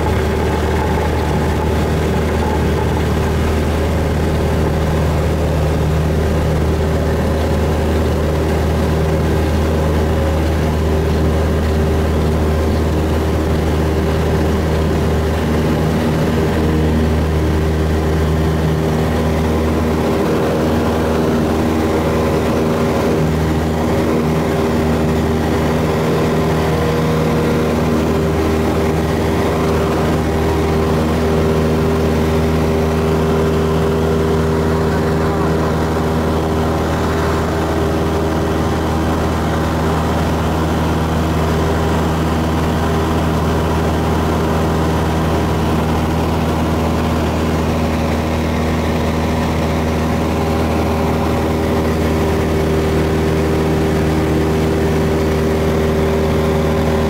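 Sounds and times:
airplane engine drone: 0.0s - 57.0s.

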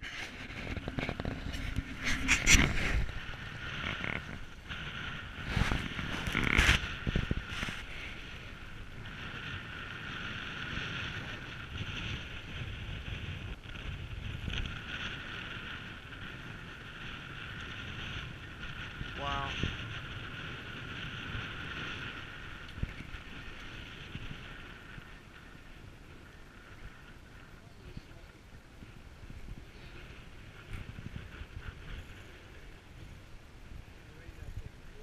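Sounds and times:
water noise: 0.0s - 35.0s
wind: 0.0s - 35.0s.

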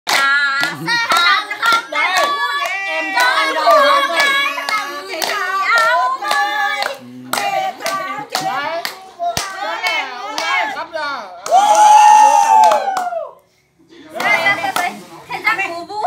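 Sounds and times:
rhythmic hand clapping: 0.1s - 10.6s
women singing together: 0.1s - 10.8s.

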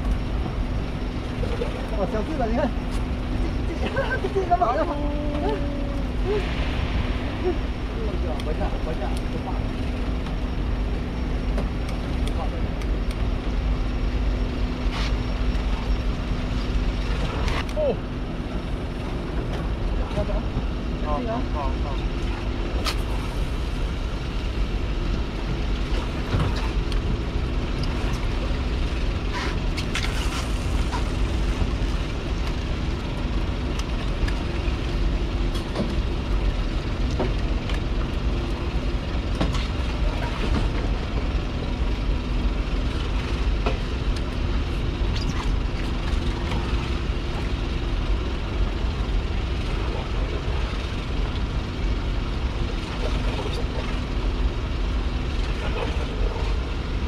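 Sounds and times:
boat engine drone: 0.0s - 57.0s
rushing noise: 6.0s - 9.7s.

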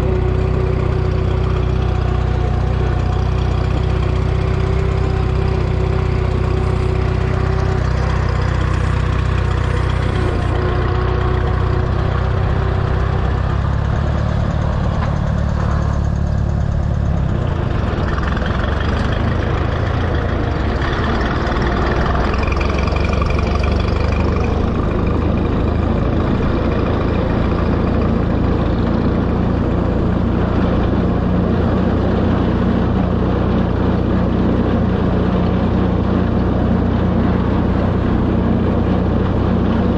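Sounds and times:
tractor engine running: 0.0s - 39.9s.

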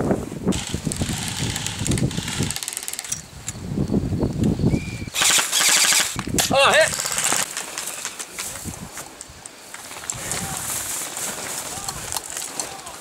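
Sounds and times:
airsoft rifles firing bursts: 5.2s - 8.1s.

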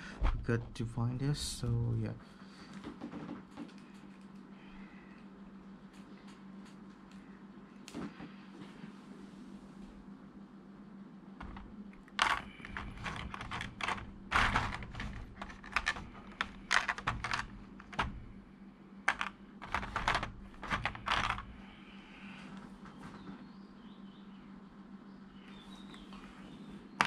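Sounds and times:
plastic tray clicking and crinkling: 11.4s - 18.3s, 19.1s - 21.6s.

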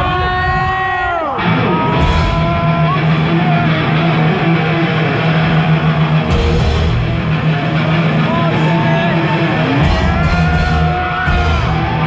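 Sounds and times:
heavy metal band playing: 0.0s - 12.0s.

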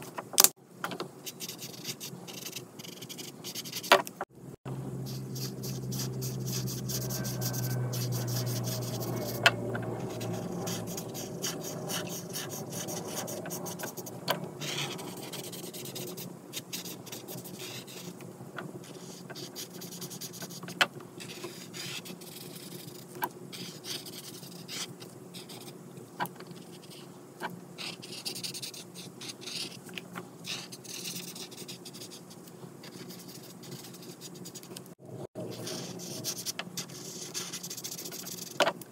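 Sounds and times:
marker scratching on paper: 1.4s - 3.9s, 5.0s - 18.1s, 18.8s - 25.7s, 30.5s - 32.2s, 32.8s - 34.7s, 35.5s - 38.6s.

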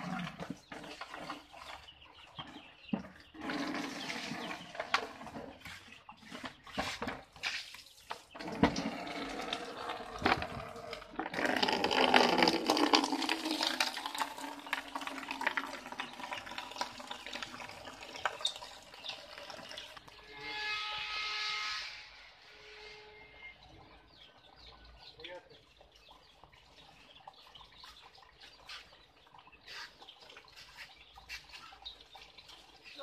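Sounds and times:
chicks peeping: 0.7s - 3.4s, 23.6s - 33.0s.

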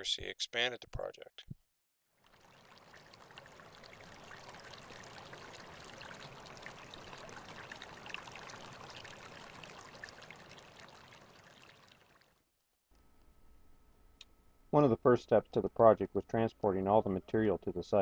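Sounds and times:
stream babbling over stones: 2.2s - 12.3s.

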